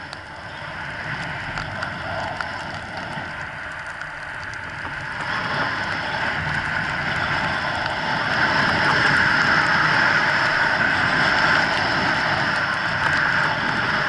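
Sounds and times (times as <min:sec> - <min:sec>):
wind rushing over microphone: 0:00.0 - 0:14.0
skis hissing on snow: 0:05.0 - 0:14.0.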